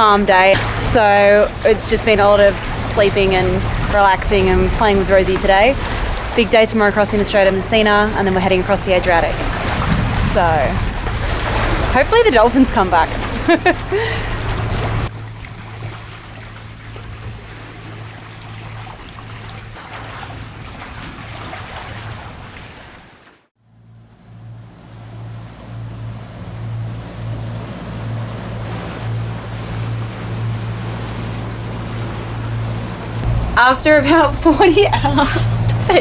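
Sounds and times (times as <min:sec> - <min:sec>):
steady low hum: 0:00.0 - 0:22.4, 0:23.6 - 0:36.0
sea water washing: 0:00.0 - 0:36.0
wind rushing: 0:09.3 - 0:12.1.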